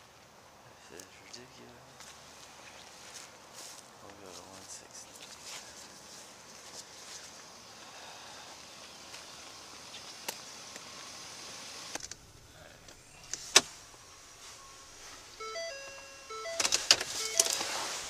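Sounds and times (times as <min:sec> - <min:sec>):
outdoor noise: 0:00.0 - 0:18.0
electronic beeps: 0:12.5 - 0:18.0.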